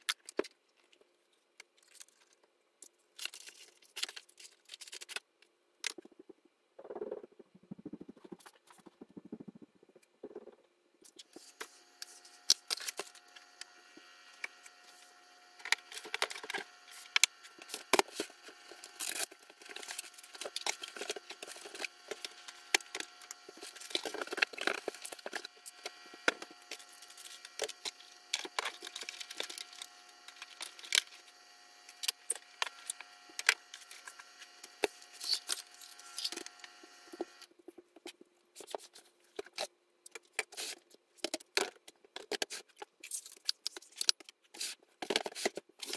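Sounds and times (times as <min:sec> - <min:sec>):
faint steady hum: 0:00.0 - 0:45.9
boxes and tools knocking and scraping: 0:15.6 - 0:31.2.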